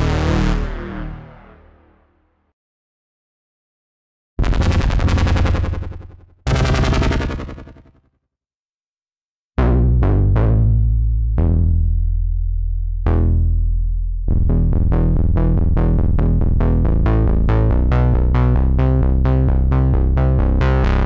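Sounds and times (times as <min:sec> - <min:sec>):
synthesizer bass notes: 0:00.0 - 0:02.0, 0:04.4 - 0:07.9, 0:09.6 - 0:21.0
synthesizer repeating note pattern: 0:04.4 - 0:08.0.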